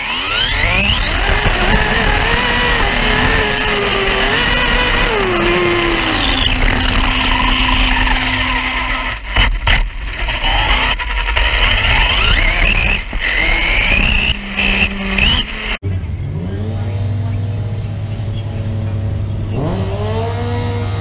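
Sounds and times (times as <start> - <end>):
rc car motor whine: 0.0 - 15.8
rushing wind: 0.0 - 15.8.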